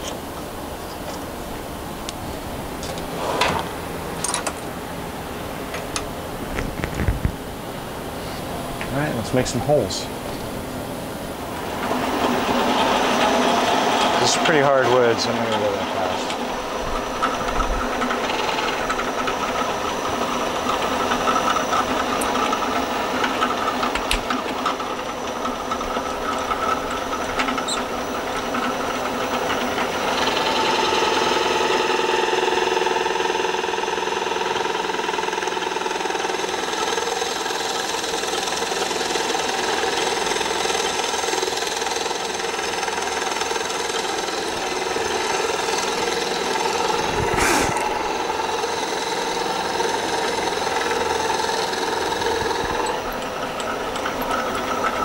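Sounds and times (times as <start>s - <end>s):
drill press boring into wood: 11.5s - 55.0s.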